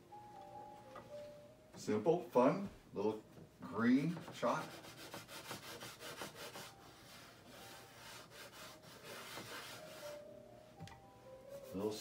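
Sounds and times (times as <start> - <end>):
pencil scratching on paper: 4.0 - 10.2.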